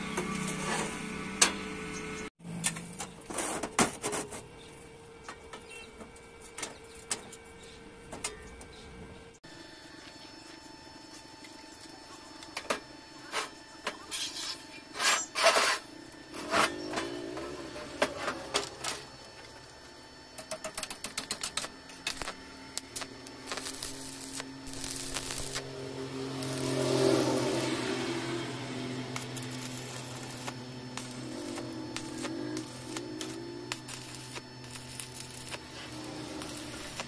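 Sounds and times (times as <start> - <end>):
welding arc crackling: 11.1 - 37.0.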